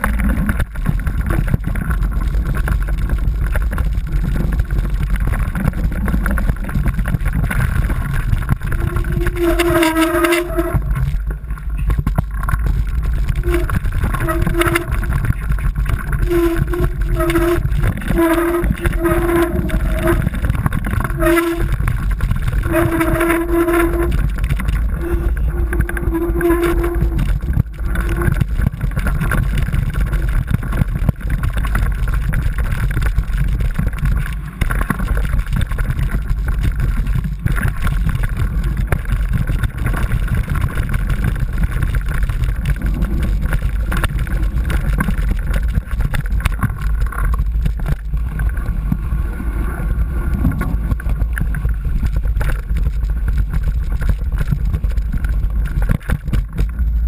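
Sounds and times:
bike rattling over bumps: 0.0 - 57.0
wind buffeting microphone: 0.0 - 57.0.

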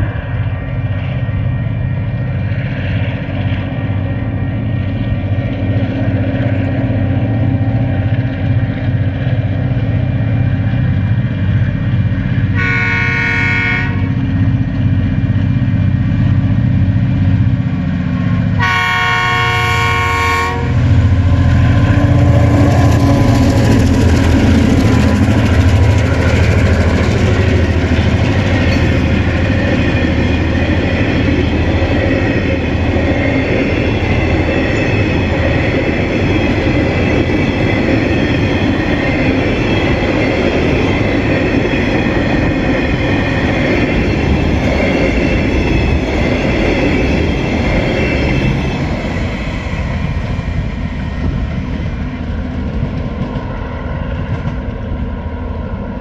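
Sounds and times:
diesel locomotive engine drone: 0.0 - 56.0
locomotive horn blasts: 12.6 - 14.2, 18.6 - 20.9.

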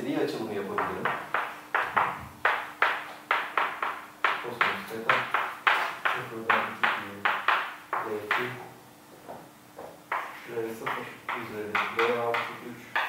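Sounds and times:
chalk writing on a blackboard: 1.0 - 8.2, 10.1 - 13.0.

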